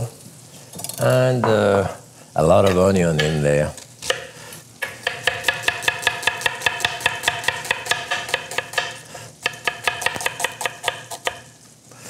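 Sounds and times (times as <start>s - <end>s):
knife tapping on cutting board: 4.8s - 11.4s.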